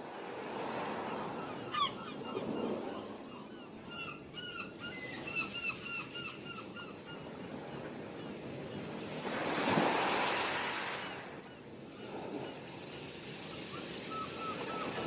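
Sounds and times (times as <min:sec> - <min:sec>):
gulls calling: 0:01.0 - 0:07.4
wave breaking and washing in: 0:09.2 - 0:11.4.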